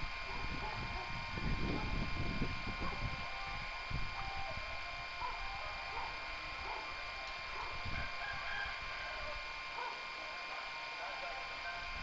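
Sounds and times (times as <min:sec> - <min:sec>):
steady high whine: 0:00.0 - 0:12.0
chickens and rooster calling: 0:04.3 - 0:11.9.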